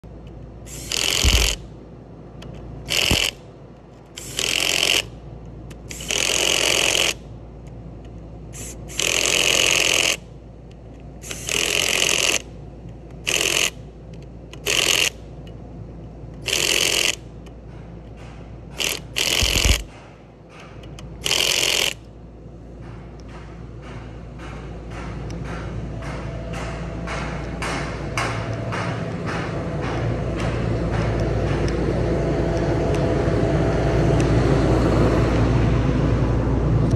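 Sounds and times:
power tool bursts: 0.7s - 1.6s, 2.9s - 3.4s, 4.2s - 5.1s, 5.9s - 7.2s, 8.6s - 10.2s, 11.2s - 12.4s, 13.2s - 13.8s, 14.6s - 15.2s, 16.4s - 17.2s, 18.7s - 19.9s, 21.2s - 22.0s.

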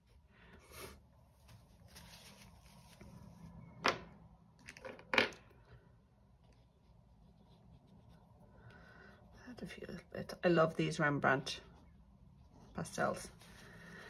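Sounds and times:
pastel scraping on paper: 6.5s - 8.3s.

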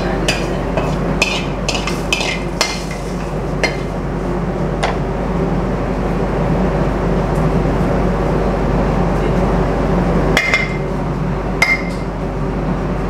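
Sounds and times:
kitchen hum: 0.0s - 13.0s.

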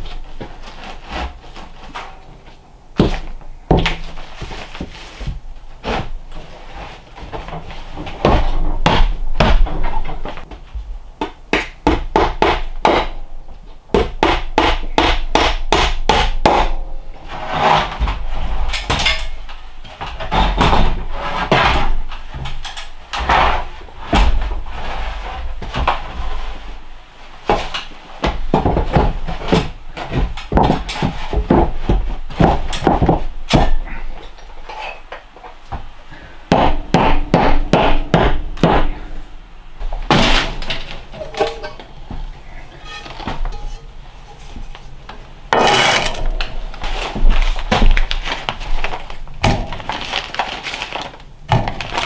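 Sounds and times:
hammer striking nails into wood: 11.5s - 13.2s, 13.9s - 16.8s, 36.5s - 39.0s.

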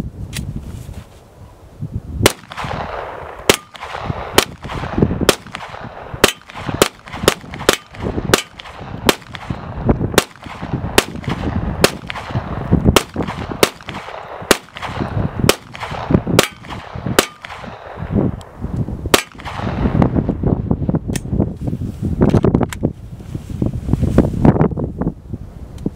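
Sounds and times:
pistol shots: 2.2s - 18.1s, 19.1s - 20.0s.

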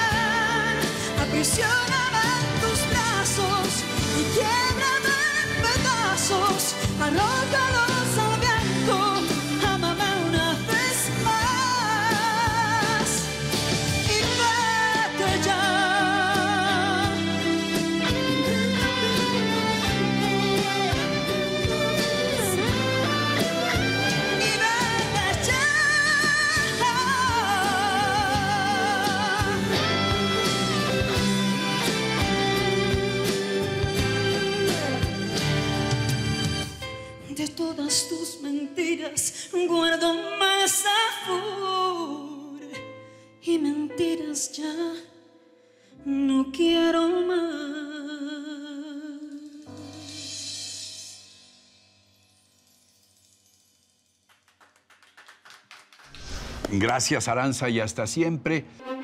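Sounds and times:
woman singing with vibrato: 0.0s - 13.4s, 14.0s - 31.0s, 37.3s - 42.7s, 46.0s - 50.1s
electric guitars: 0.0s - 37.2s
drums: 0.0s - 38.1s, 49.0s - 58.2s
keyboard: 0.0s - 47.4s.

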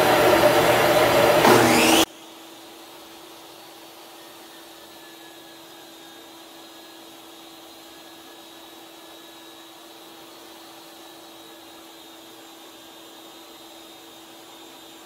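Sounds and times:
table saw whirring: 0.0s - 2.6s
dust collection vacuum hum: 0.0s - 3.0s.

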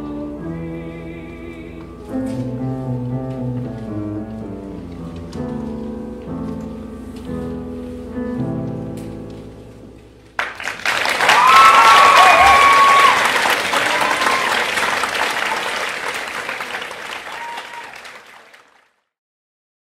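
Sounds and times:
piano chord: 0.0s - 10.7s
audience cheering: 10.4s - 18.7s
audience applause: 10.4s - 19.0s.

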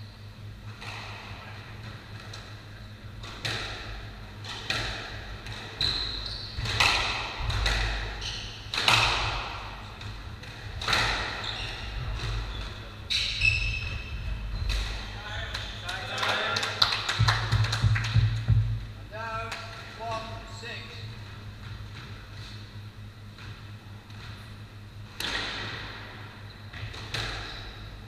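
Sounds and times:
squash ball cracking off rackets and walls: 3.2s - 5.8s, 6.6s - 12.6s, 25.1s - 27.7s.

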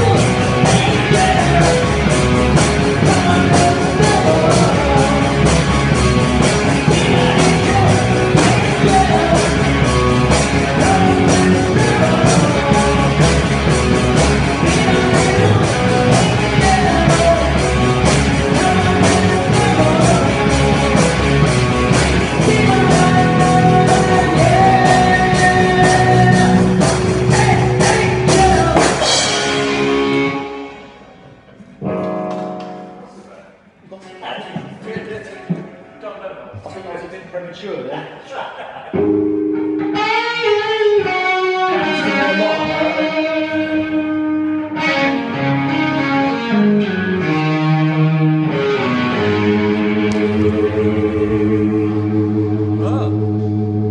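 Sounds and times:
drum kit cymbals: 0.0s - 30.1s
amplified electric guitars: 0.0s - 33.8s, 38.8s - 53.9s
rock band playing live: 0.0s - 33.8s, 38.9s - 53.9s.

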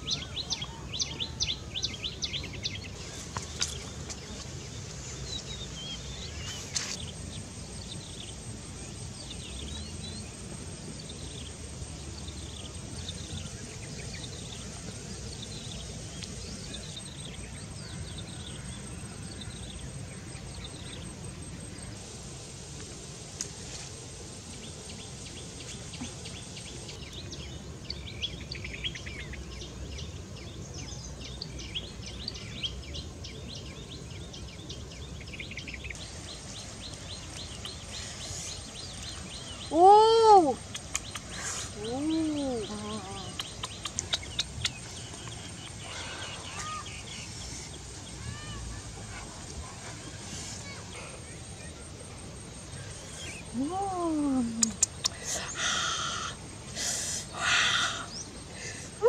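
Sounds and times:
bird chirping: 24.9s - 48.8s.

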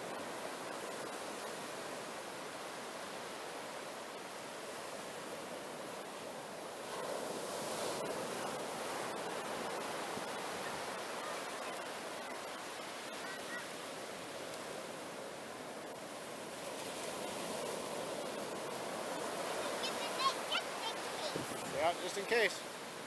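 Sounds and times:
ocean surf breaking on a beach: 0.0s - 23.0s.

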